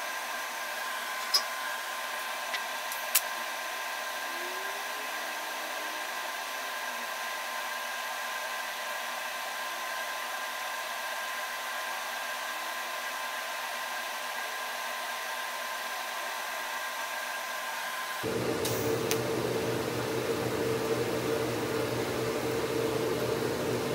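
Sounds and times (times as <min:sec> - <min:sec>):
welding arc hissing: 0:18.2 - 0:23.9.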